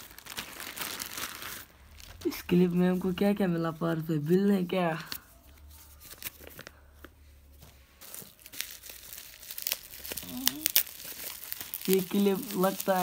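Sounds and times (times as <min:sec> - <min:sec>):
bubble wrap crackling: 0:00.0 - 0:06.8, 0:08.0 - 0:13.0.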